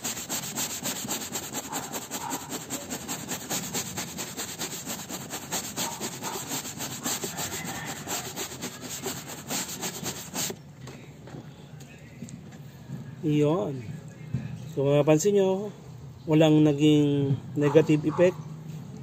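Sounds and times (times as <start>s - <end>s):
scrub brush scrubbing fabric: 0.0s - 10.6s.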